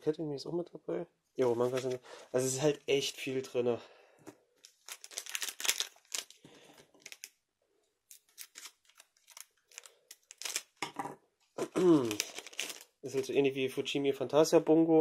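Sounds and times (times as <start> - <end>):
cards being flipped: 1.4 - 2.0, 4.6 - 7.4, 8.1 - 10.8.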